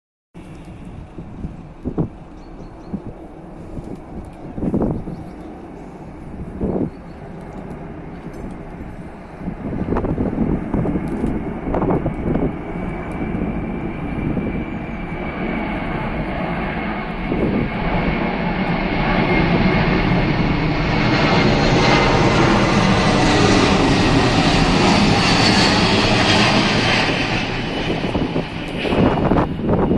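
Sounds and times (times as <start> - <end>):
jet aircraft engines roaring: 0.4 - 29.9
jet engine whine: 0.4 - 29.9.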